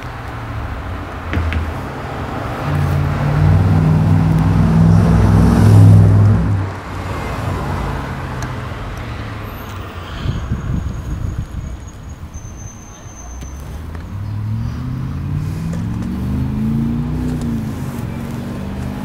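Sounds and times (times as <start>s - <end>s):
vehicle engine running: 0.0s - 8.0s.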